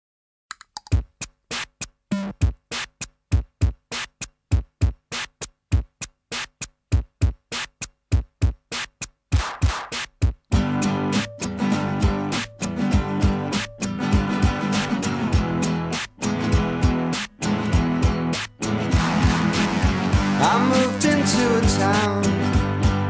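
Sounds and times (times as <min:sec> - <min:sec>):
drum machine beat: 0:00.7 - 0:23.0
rock band with bass and guitar: 0:10.5 - 0:23.0.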